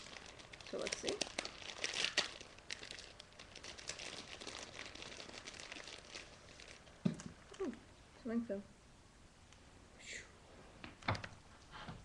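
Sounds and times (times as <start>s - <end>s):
plastic wrapping crinkling: 0.0s - 7.8s.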